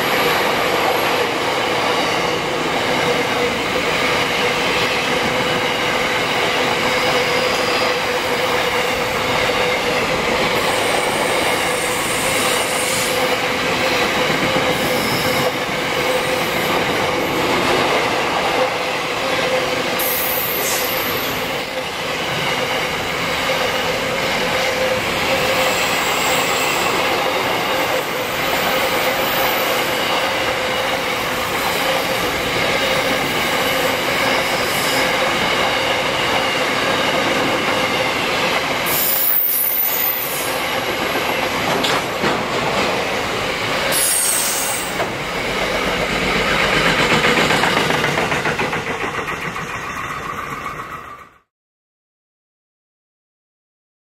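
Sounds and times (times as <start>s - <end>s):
freight train wheels on rails: 0.0s - 51.5s.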